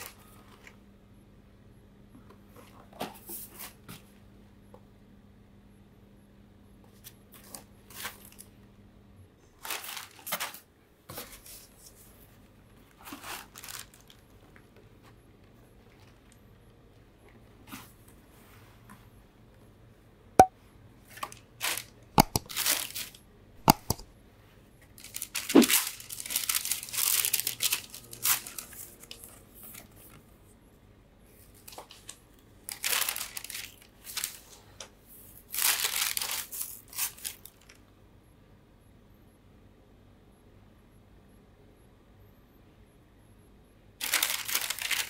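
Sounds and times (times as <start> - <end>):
tissue paper rustling: 9.6 - 10.6, 13.0 - 14.2, 22.5 - 23.2, 25.0 - 30.0, 32.7 - 34.6, 35.4 - 37.7, 44.0 - 45.0.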